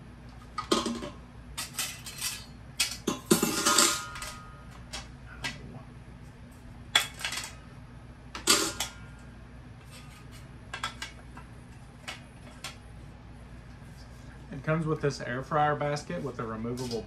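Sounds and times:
kitchen utensils clattering: 0.6s - 4.6s, 7.0s - 7.6s, 8.4s - 9.0s.

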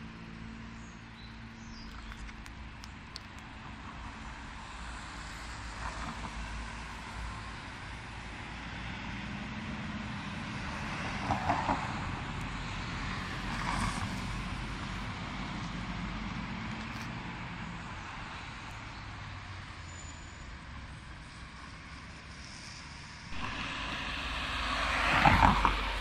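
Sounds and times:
road traffic: 0.0s - 26.0s
low steady hum: 23.3s - 26.0s
metro train running: 23.3s - 26.0s.

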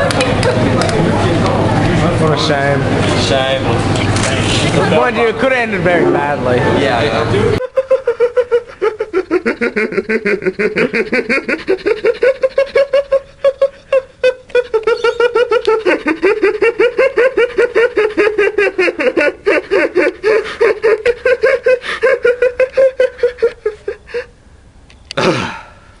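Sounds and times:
person cackling laughter: 7.6s - 24.3s.

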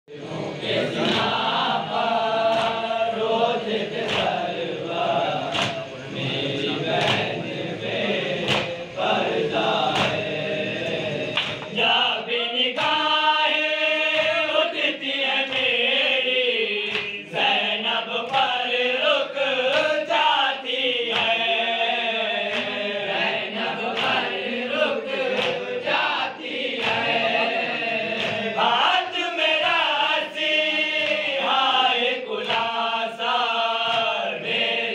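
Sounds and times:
men chanting in unison: 0.1s - 34.9s
chest-beating slaps: 2.5s - 2.9s, 4.0s - 4.4s, 5.4s - 5.9s, 6.9s - 7.4s, 8.3s - 9.1s, 9.8s - 11.8s, 21.1s - 21.4s, 22.5s - 22.8s, 25.3s - 25.7s, 26.7s - 27.2s, 28.2s - 28.5s.

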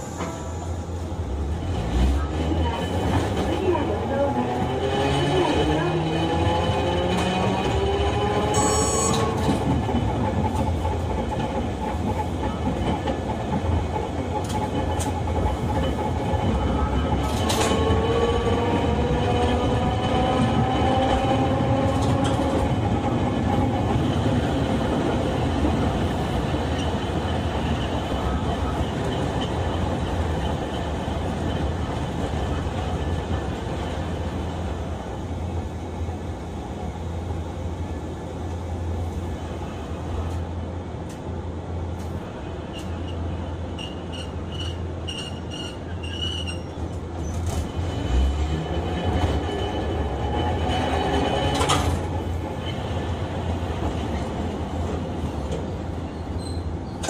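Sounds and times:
tram wheels and motors rumbling: 0.0s - 57.0s
high wheel squeal: 8.5s - 9.4s, 42.7s - 49.0s.

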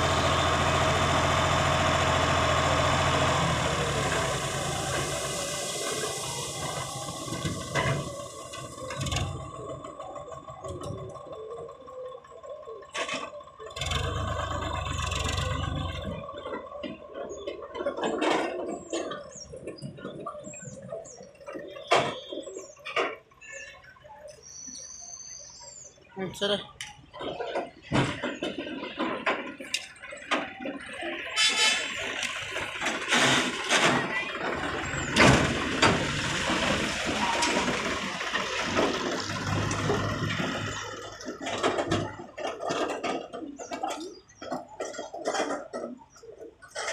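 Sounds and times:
tractor engine running: 0.0s - 46.9s
birds chirping: 18.8s - 29.0s, 43.4s - 45.2s.

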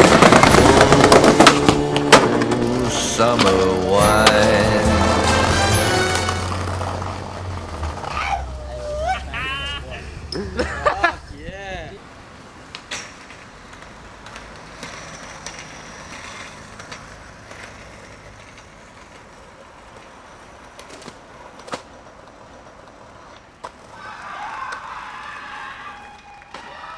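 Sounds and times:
skateboard clacks: 0.0s - 9.1s, 12.4s - 25.2s
skateboard sliding on metal rail: 0.0s - 9.1s, 12.5s - 26.9s.

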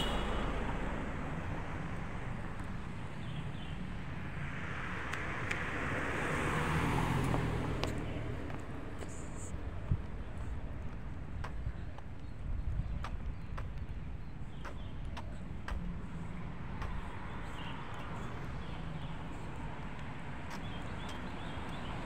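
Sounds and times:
vehicle passing: 0.0s - 11.3s
road traffic rumble: 0.0s - 22.0s.

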